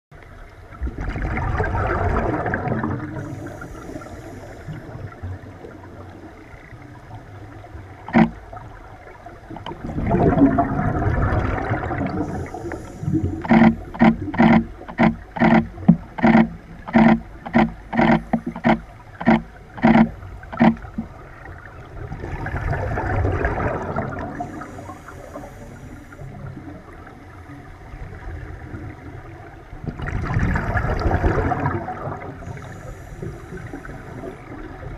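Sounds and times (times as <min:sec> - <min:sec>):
hissing regulator inhalations: 0:03.2 - 0:04.9, 0:12.2 - 0:15.6, 0:24.4 - 0:26.3, 0:32.4 - 0:34.4
diver bubbly exhalations: 0:09.8 - 0:13.6.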